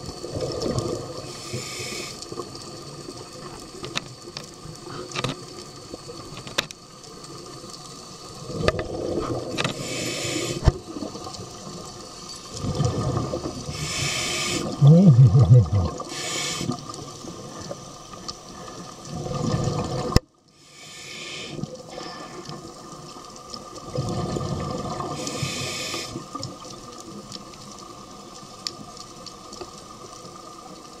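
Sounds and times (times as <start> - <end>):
exhaled bubbles rumbling: 0.0 - 1.3, 8.4 - 9.7, 12.5 - 16.1, 18.7 - 20.2, 23.6 - 25.3
regulator inhale hiss: 1.2 - 2.4, 9.6 - 10.8, 13.7 - 14.8, 16.0 - 17.2, 20.5 - 22.8, 25.0 - 26.4.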